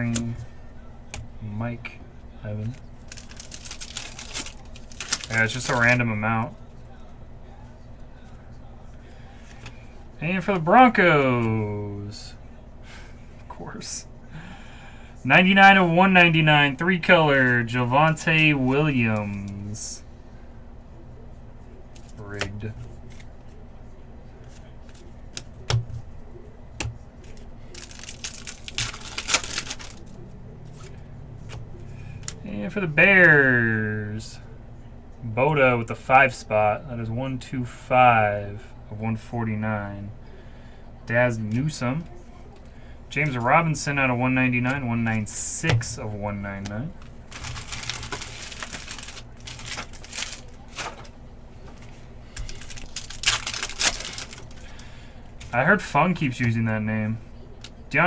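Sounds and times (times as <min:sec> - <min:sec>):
cards being handled: 0:02.6 - 0:06.6, 0:18.1 - 0:19.7, 0:21.9 - 0:23.6, 0:24.4 - 0:26.1, 0:26.8 - 0:32.4, 0:44.5 - 0:54.8
foil pack tearing and crinkling: 0:03.0 - 0:06.0, 0:27.2 - 0:30.2, 0:47.3 - 0:51.1, 0:52.4 - 0:54.8.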